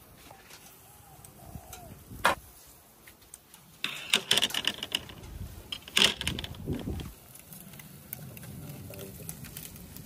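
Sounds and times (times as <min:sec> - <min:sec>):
metal skewers clattering: 0:03.8 - 0:07.1.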